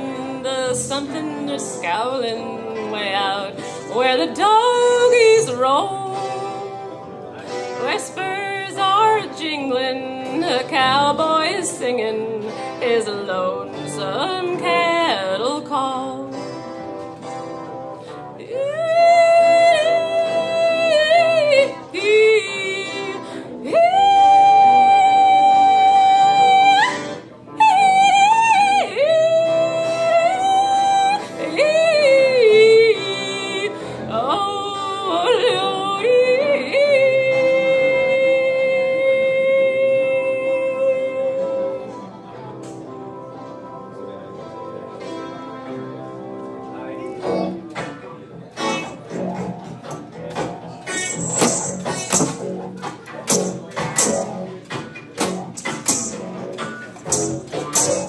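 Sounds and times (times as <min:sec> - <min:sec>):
woman singing wordlessly: 0:00.0 - 0:06.8, 0:07.8 - 0:16.4, 0:18.4 - 0:42.0.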